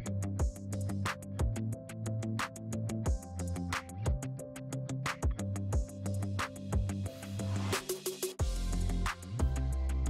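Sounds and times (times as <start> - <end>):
kick drum and hi-hat beat: 0.0 - 4.5, 5.1 - 10.0
repeating bass line: 8.4 - 10.0.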